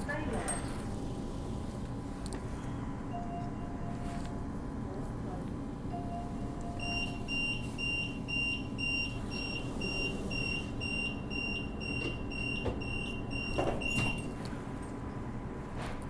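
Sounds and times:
train low hum: 0.0 - 13.7
high electronic door beeps: 6.0 - 14.4.

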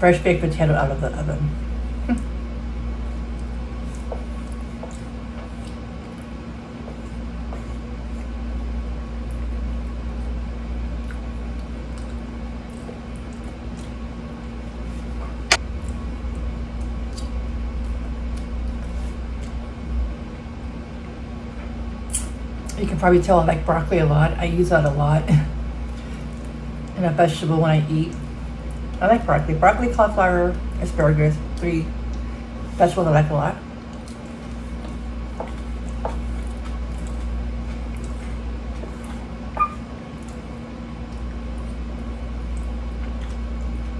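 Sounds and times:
steady low hum: 0.0 - 43.9
person chewing: 3.0 - 8.4, 11.0 - 15.2, 15.8 - 19.8, 33.9 - 43.9.

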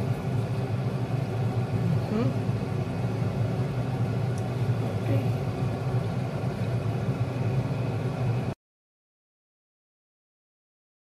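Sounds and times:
low machine hum: 0.0 - 8.6.

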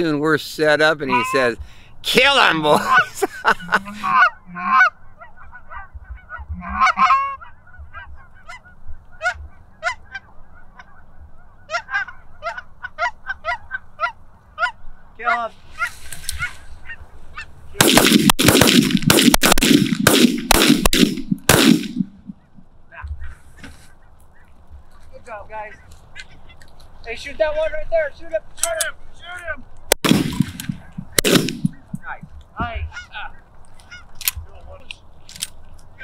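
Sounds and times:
geese honking: 1.0 - 1.5, 2.4 - 17.6, 22.2 - 26.7, 30.8 - 34.2
shotgun blasts: 17.8 - 22.4, 29.9 - 32.2.

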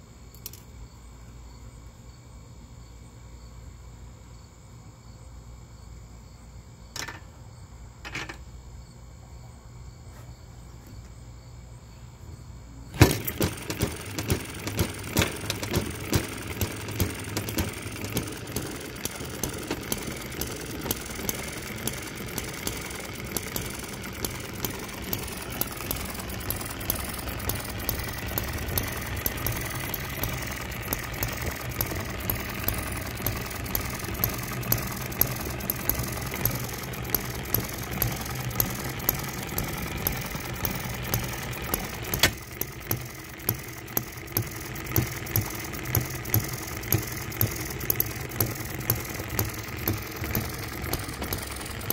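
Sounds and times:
sharp click: 0.3 - 0.7
engine firing pops: 12.9 - 51.9
model engine rapid ticking: 12.9 - 51.9.

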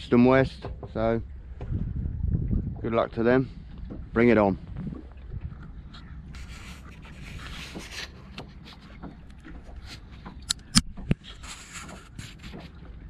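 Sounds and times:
breeze rumbling on microphone: 1.2 - 8.0
sharp clicks and knocks: 10.2 - 12.7.

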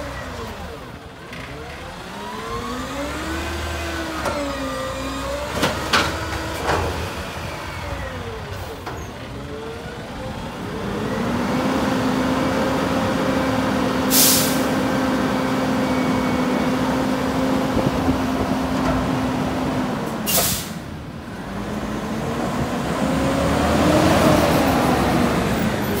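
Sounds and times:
garbage truck engine revving: 0.0 - 8.7, 9.6 - 26.0
air hisses: 14.1 - 14.7.

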